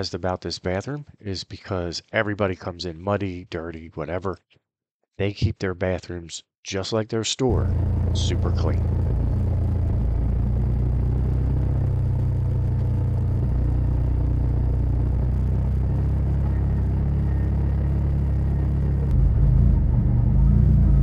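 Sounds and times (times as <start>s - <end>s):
utility vehicle engine running: 7.5s - 21.0s.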